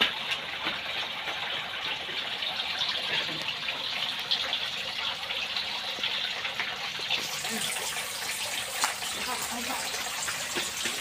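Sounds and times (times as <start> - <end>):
light rain hiss: 0.0 - 11.0.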